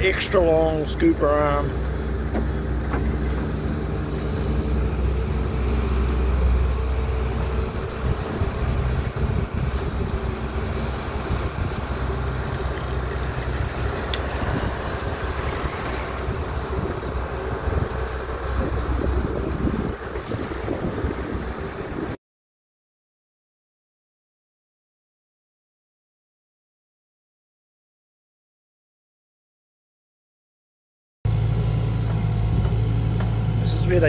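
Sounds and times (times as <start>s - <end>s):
excavator diesel engine running: 0.0s - 22.2s, 31.3s - 34.0s
wind buffeting microphone: 0.0s - 22.2s.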